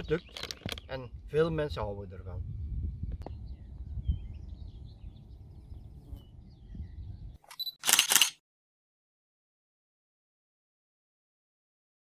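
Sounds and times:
wind rumble on microphone: 0:00.0 - 0:07.4
faint bird chirps: 0:03.2 - 0:07.8
short sharp clicks: 0:07.4 - 0:08.4.

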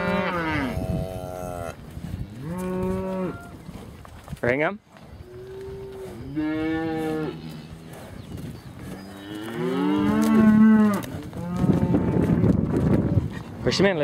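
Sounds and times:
cattle mooing: 0:00.0 - 0:03.6, 0:05.3 - 0:08.0, 0:09.0 - 0:12.3.

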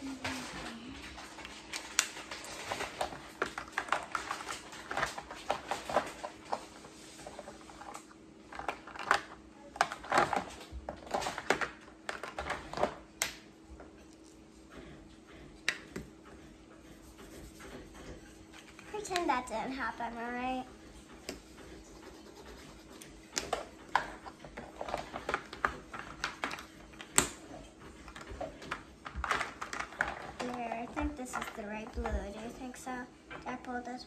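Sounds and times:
plastic markers rattling together: 0:28.0 - 0:32.1.

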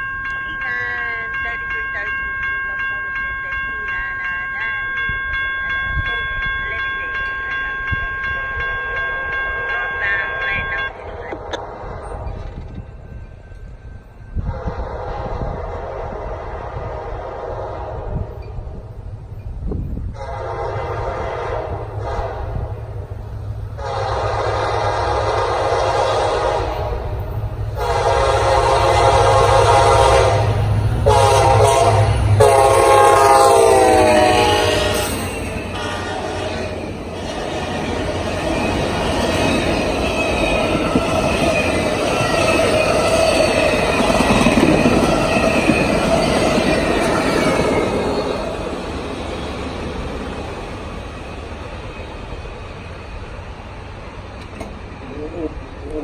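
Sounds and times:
crossing warning bell ringing: 0:00.0 - 0:15.5, 0:22.0 - 0:53.0
locomotive air horn blasts: 0:14.4 - 0:18.3, 0:20.2 - 0:22.7, 0:23.8 - 0:27.0, 0:27.8 - 0:36.8.

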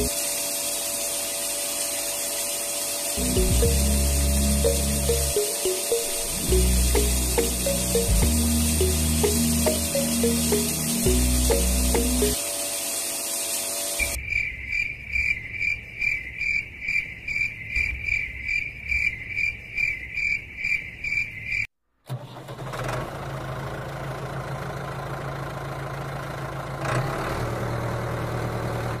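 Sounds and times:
toy tractor motor humming: 0:00.0 - 0:05.1
high chirping: 0:03.2 - 0:12.4.

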